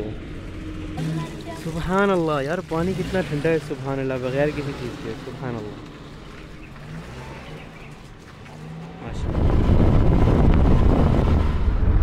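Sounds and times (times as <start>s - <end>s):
car road noise rumble: 0.0s - 12.0s
wind buffeting microphone: 9.0s - 12.0s.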